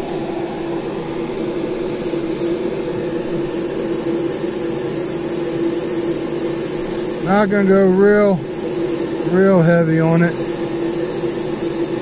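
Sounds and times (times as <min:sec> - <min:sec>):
motor hum: 0:00.0 - 0:12.0
airbrush hissing: 0:01.9 - 0:02.6, 0:03.5 - 0:12.0
short puffs of air: 0:01.9 - 0:02.6.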